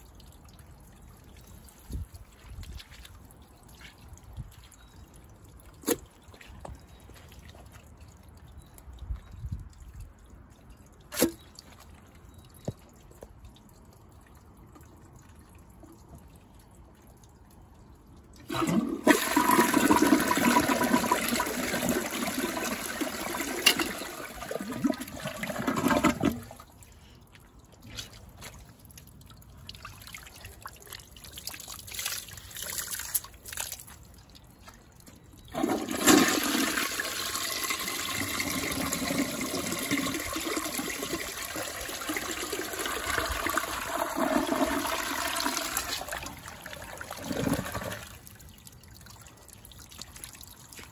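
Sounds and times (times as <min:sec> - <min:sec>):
water trickling into bowl: 0:00.0 - 0:50.9
toilet flushing: 0:18.4 - 0:26.6, 0:35.5 - 0:48.2.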